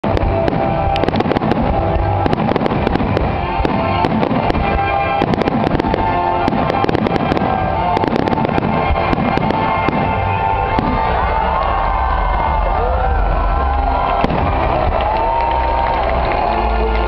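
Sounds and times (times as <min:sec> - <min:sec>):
fireworks bangs and crackles: 0:00.0 - 0:17.0
loud music with held notes: 0:00.0 - 0:17.0.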